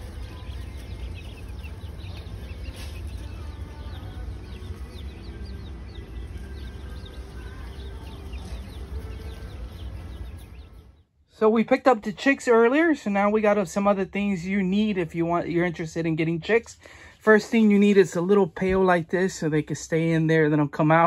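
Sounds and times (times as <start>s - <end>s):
ducklings and chicks peeping: 0.0s - 11.0s.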